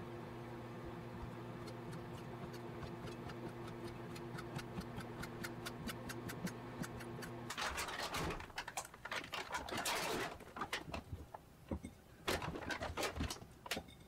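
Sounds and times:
low steady hum: 0.0s - 8.7s.

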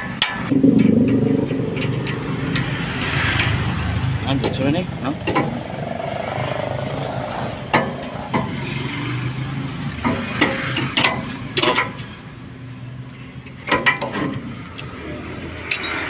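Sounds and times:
low machine hum: 0.5s - 4.2s
metallic clinks and knocks: 15.6s - 16.0s.

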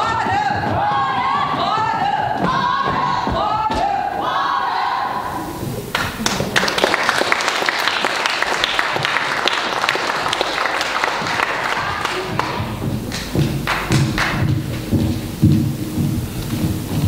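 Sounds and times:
audience applauding: 5.7s - 15.4s
low thuds: 11.2s - 17.0s.

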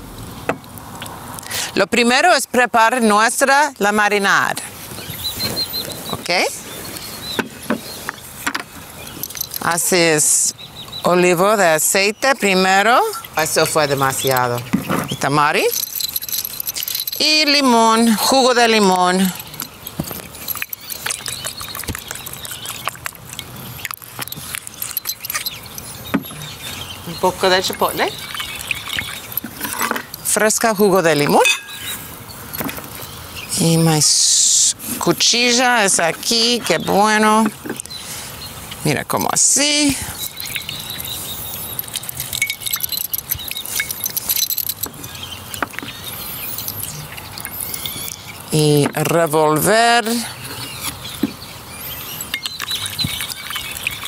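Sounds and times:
juice dripping: 0.2s - 1.8s, 3.8s - 33.6s, 35.6s - 54.0s
bottles clicking and knocking: 7.2s - 10.2s, 13.2s - 33.0s, 38.7s - 54.0s
wet squishing of lemon: 19.3s - 30.2s, 40.0s - 48.5s, 50.3s - 54.0s
liquid pouring into bowl: 27.7s - 30.3s, 52.0s - 54.0s.

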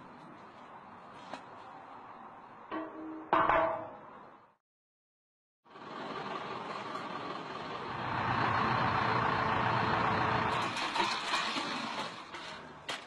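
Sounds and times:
truck engine running: 5.7s - 12.2s.

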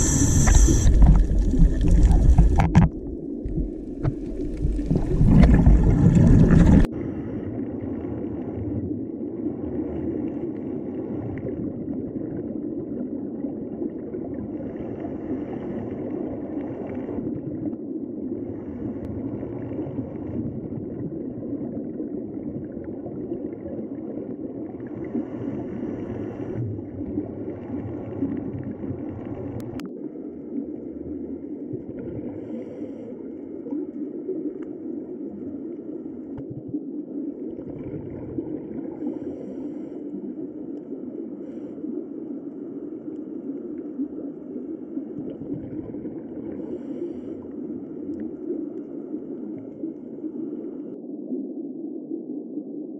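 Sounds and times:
faint higher hiss: 0.0s - 2.4s
underwater rumbling wash: 0.0s - 51.1s.

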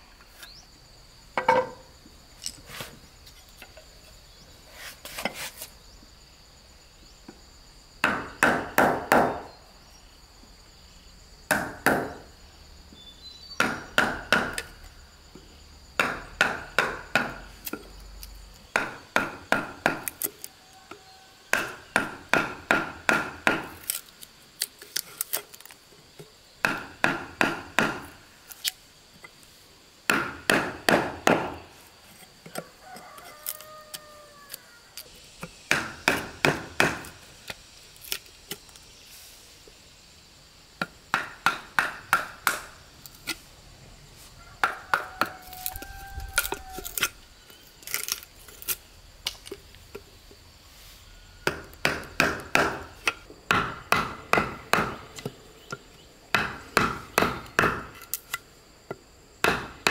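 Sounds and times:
hand tool chopping wood: 13.6s - 14.7s, 16.0s - 17.8s, 18.8s - 20.3s, 21.5s - 24.0s, 26.6s - 28.2s, 30.1s - 31.6s, 35.4s - 37.2s, 40.8s - 42.7s, 51.4s - 58.3s, 59.4s - 59.9s.

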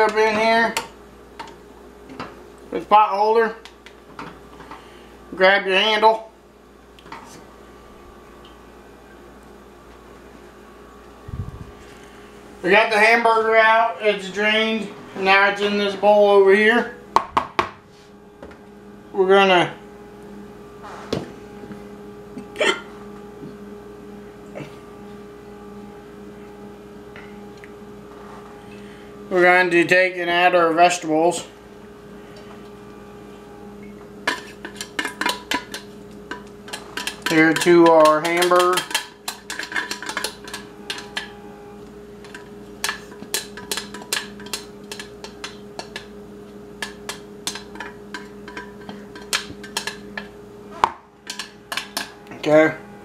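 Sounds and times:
steady low hum: 0.0s - 53.0s
kitchen handling sounds: 34.2s - 41.3s.

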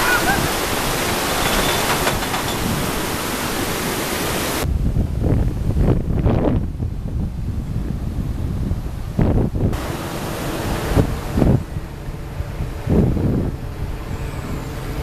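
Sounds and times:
wind buffeting microphone: 0.0s - 15.0s
outdoor rushing noise: 9.2s - 15.0s.

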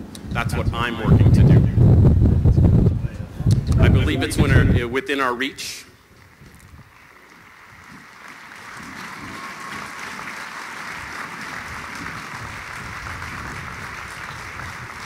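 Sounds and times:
large crowd applauding: 6.1s - 15.0s.

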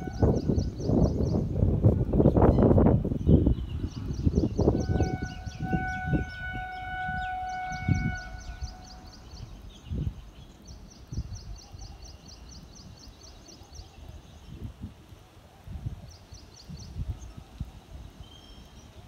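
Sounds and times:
distant horn-like tone: 0.0s - 0.6s, 4.6s - 9.4s
bird chirping: 2.3s - 14.6s.

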